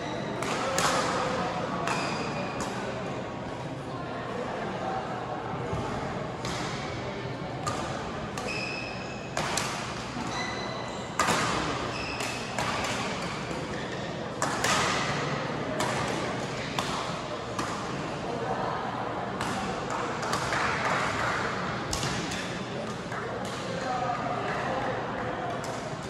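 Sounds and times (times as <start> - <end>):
court shoes squeaking: 0.0 - 0.8, 1.9 - 2.9, 8.4 - 15.2
sports hall noise: 0.0 - 26.0.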